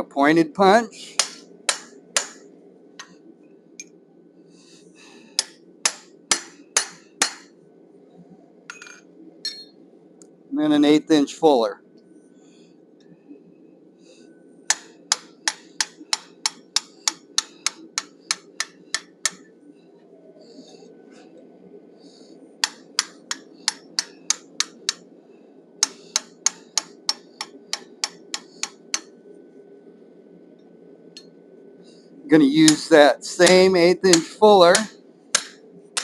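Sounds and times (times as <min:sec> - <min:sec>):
steady low hum: 0:00.0 - 0:36.0
hammer striking tool on hot steel: 0:01.1 - 0:02.4, 0:05.4 - 0:07.5, 0:09.5 - 0:09.7, 0:14.7 - 0:19.5, 0:22.6 - 0:25.0, 0:25.8 - 0:29.1, 0:32.6 - 0:36.0.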